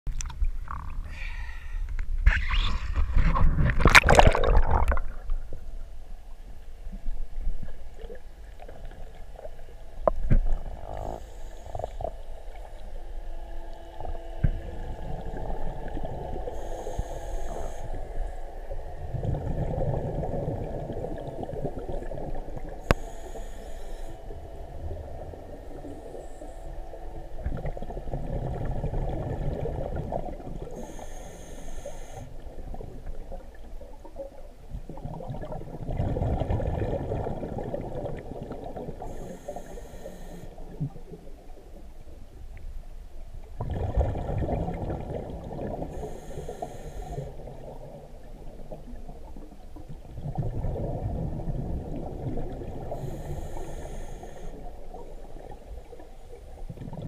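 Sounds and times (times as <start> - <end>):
gurgle of exhaled bubbles: 2.3 - 5.6, 19.0 - 22.9, 27.3 - 30.9, 32.4 - 39.2, 43.5 - 46.2, 47.2 - 53.5, 54.9 - 57.0
water splashing: 3.0 - 5.5
scuba regulator hiss: 16.5 - 18.0, 22.9 - 24.2, 30.8 - 32.3, 39.1 - 40.6, 45.9 - 47.3, 52.9 - 54.6.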